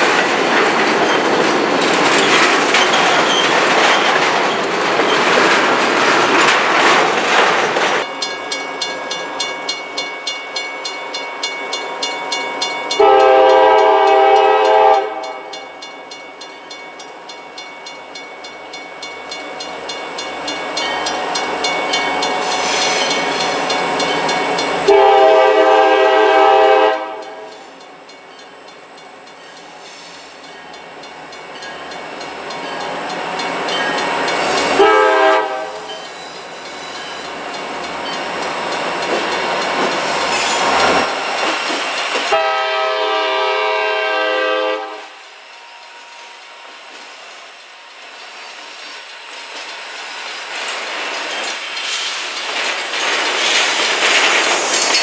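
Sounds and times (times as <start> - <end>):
diesel locomotive engines: 0.0 - 55.0
rail cars rolling past: 0.0 - 55.0
locomotive air horn blasts: 13.0 - 15.5, 24.9 - 27.4, 34.8 - 35.9, 42.3 - 45.2.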